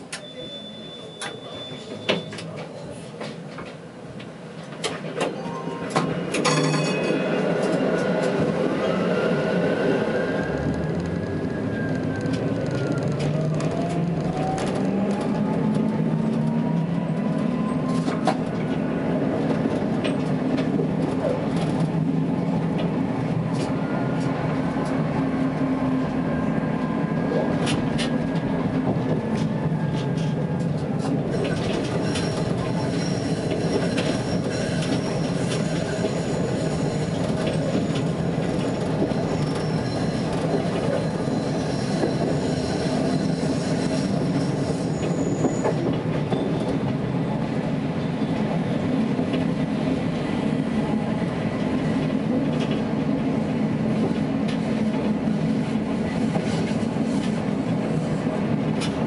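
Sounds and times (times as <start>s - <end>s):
high wheel squeal: 0.1s - 2.5s, 31.3s - 46.7s
tram traction drive whine: 4.2s - 56.2s.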